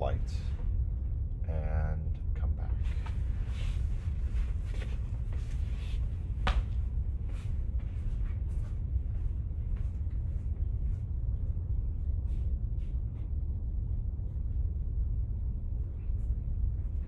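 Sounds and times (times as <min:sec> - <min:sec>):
low room rumble: 0:00.0 - 0:17.0
faint footsteps: 0:02.8 - 0:14.9.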